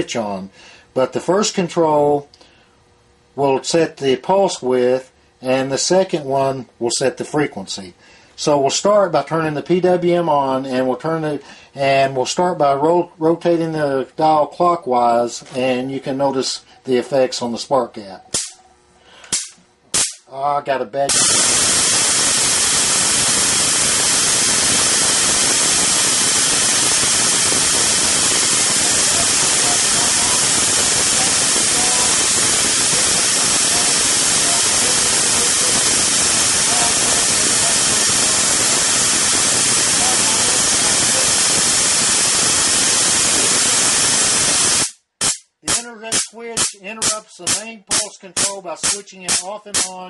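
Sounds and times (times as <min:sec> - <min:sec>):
crackling buzz of electric arcing: 0:18.3 - 0:18.6, 0:19.3 - 0:20.4, 0:21.0 - 0:50.0.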